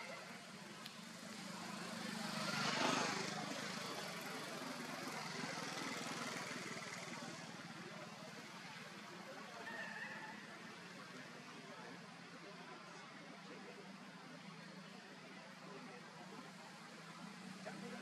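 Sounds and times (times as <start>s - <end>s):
vehicle engine passing by: 1.1s - 7.7s.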